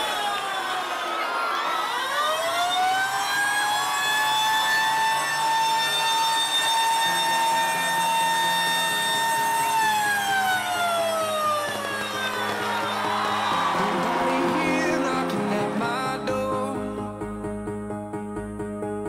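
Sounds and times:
siren wail: 0:00.0 - 0:15.0
electronic dance music: 0:00.0 - 0:18.9.

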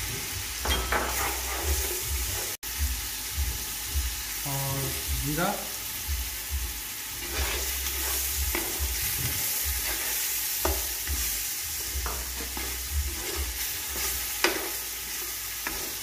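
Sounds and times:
food sizzling in oil: 0:00.0 - 0:16.0
spoon scraping pan: 0:00.7 - 0:02.6, 0:07.2 - 0:16.0.

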